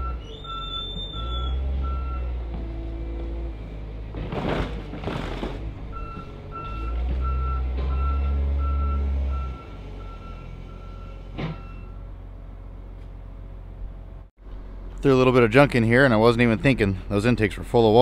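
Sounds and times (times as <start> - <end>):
loader engine revving: 0.0 - 14.3.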